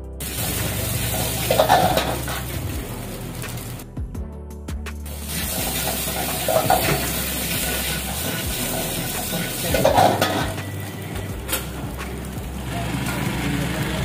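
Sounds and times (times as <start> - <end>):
food sizzling in a wok: 0.2 - 3.8, 5.0 - 14.0
ladle scraping a wok: 0.5 - 2.6, 5.3 - 10.7.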